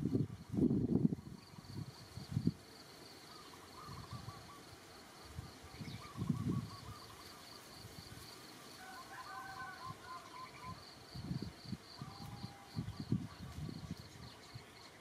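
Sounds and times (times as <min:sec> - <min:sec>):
crickets chirping: 0:00.0 - 0:15.0
soft trilling calls: 0:03.2 - 0:04.8.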